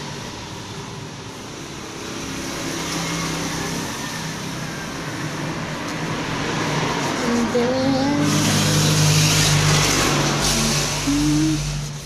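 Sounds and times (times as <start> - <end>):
vehicle engine running: 5.2 - 12.0
hiss: 8.2 - 12.0.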